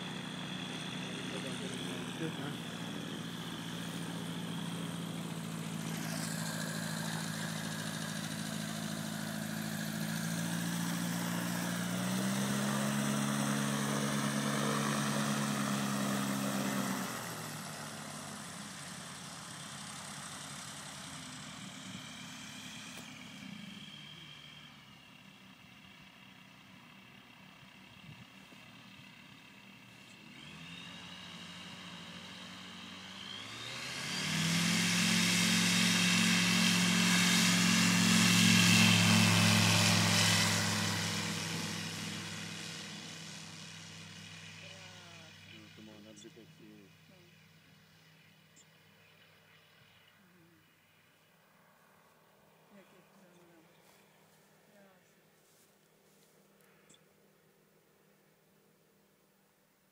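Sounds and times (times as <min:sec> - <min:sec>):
ultralight aircraft engine and propeller: 0:00.0 - 0:56.0.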